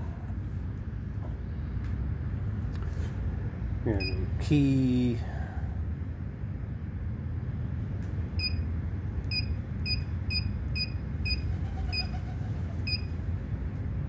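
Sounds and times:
short electronic beeps: 4.0s - 4.3s, 8.4s - 8.6s, 9.3s - 12.1s.

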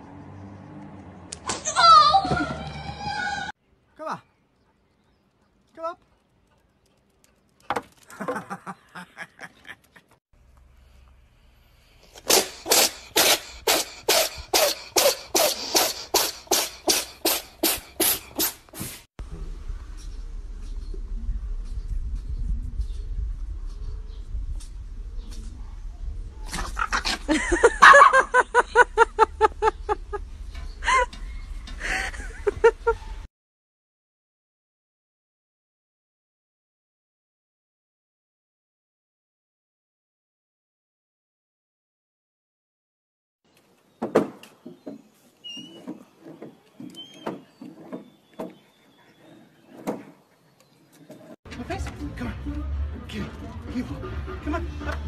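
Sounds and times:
small dogs yipping: 27.8s - 28.3s.

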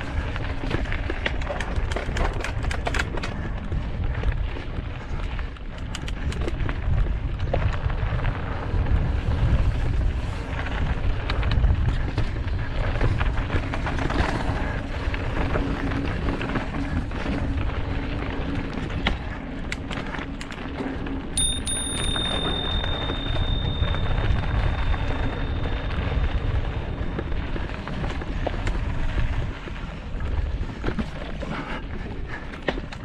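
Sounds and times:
wind rushing over microphone: 0.0s - 20.5s, 21.1s - 33.0s
bike clicks and rattles: 0.0s - 33.0s
thin steady high tone: 21.4s - 26.5s.

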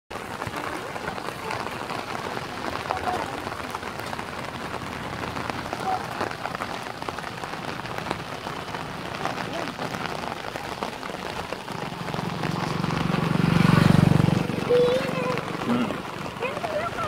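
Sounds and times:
steady rain: 0.1s - 17.0s.

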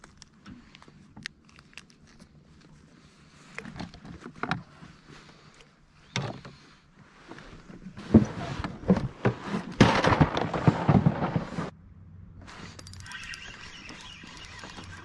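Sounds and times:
scraping and rustling: 6.3s - 11.7s.

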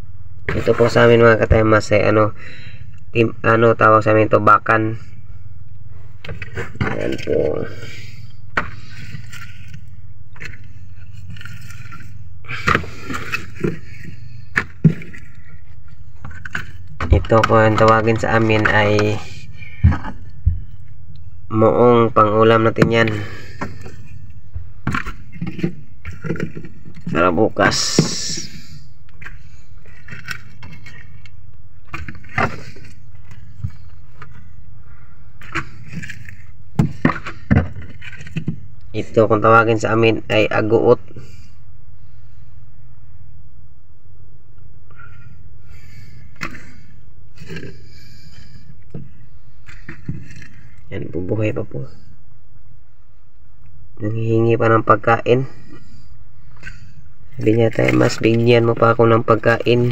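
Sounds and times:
fish knocking and scraping: 6.2s - 20.8s, 22.7s - 34.6s, 35.3s - 38.8s, 45.0s - 50.8s, 55.6s - 59.9s.

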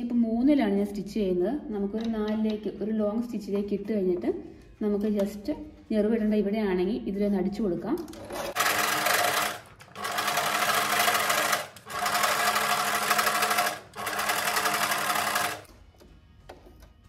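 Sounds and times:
electric sewing machine running: 8.2s - 15.7s.

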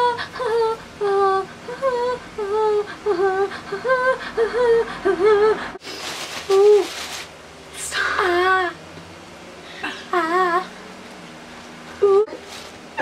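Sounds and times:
woman humming wavering notes: 10.0s - 10.8s, 12.0s - 12.4s.

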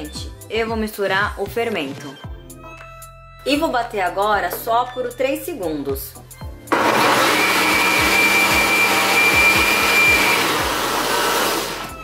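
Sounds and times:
blender motor whining: 6.7s - 12.0s.

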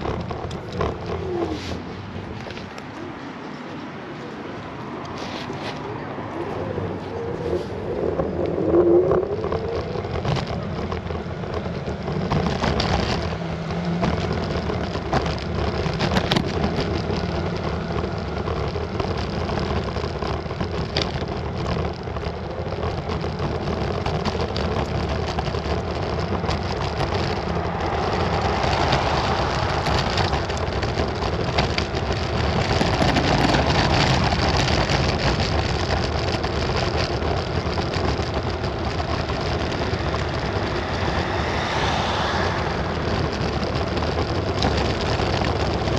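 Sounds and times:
electric scooter riding noise: 0.0s - 45.9s
tyres rolling with low rumble: 0.0s - 45.9s
wind rushing: 26.3s - 35.2s, 38.4s - 45.9s.

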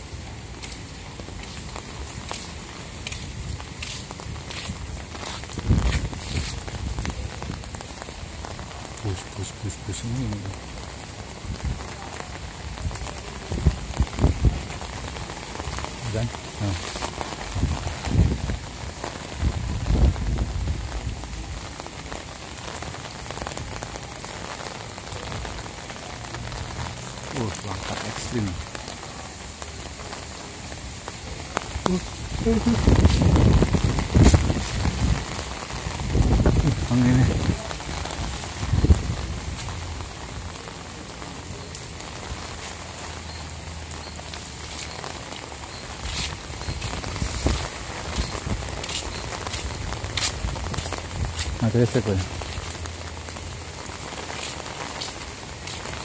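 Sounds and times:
rain pattering on umbrella: 0.0s - 56.0s
wind buffeting microphone: 3.3s - 7.6s, 12.7s - 15.0s, 17.4s - 21.2s, 32.0s - 39.8s, 46.0s - 51.6s.

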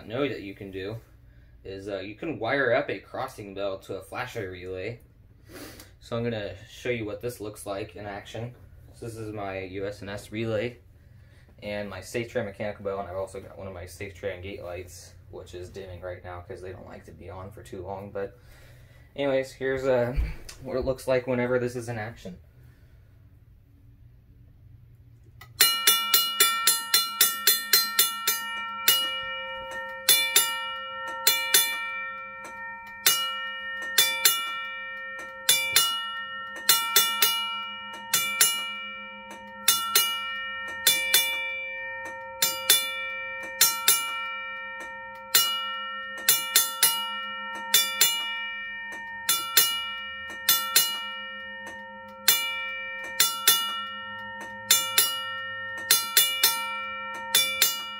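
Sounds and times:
railroad crossing bell ringing: 25.4s - 57.9s.

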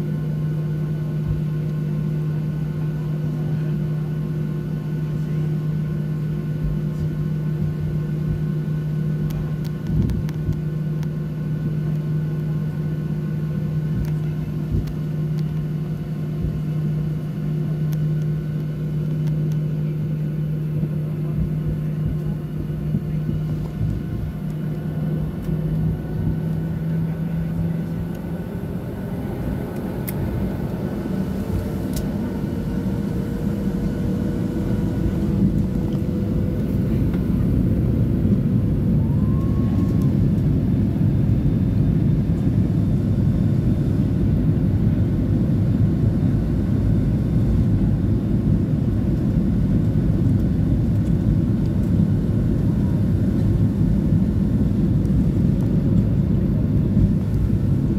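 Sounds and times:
jet engines spooling up: 23.3s - 44.4s.

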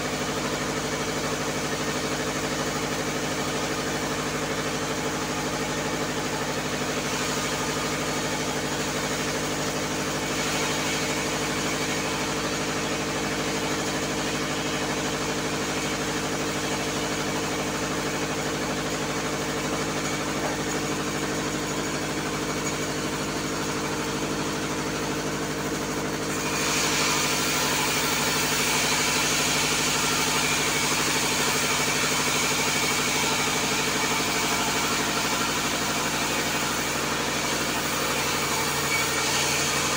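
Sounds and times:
bandsaw mill droning: 0.0s - 39.9s
saw blade hissing through wood: 5.9s - 15.9s, 26.2s - 39.9s.

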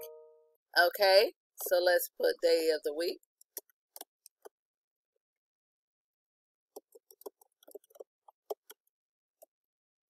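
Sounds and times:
typing on keyboard: 6.8s - 8.9s.

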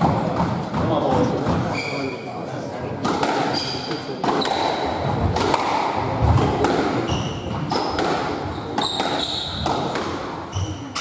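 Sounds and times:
squash ball knocks: 0.0s - 1.7s, 3.0s - 11.0s
shoes squeaking on wooden floor: 1.2s - 2.3s, 7.0s - 11.0s.

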